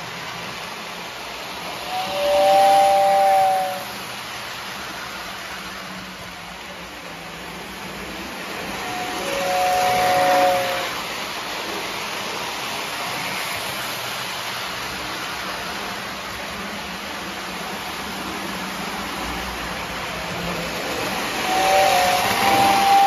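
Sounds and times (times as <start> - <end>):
model train wheels rumbling: 0.0 - 23.0
model train whistle: 1.7 - 4.0, 8.7 - 11.0, 21.3 - 23.0.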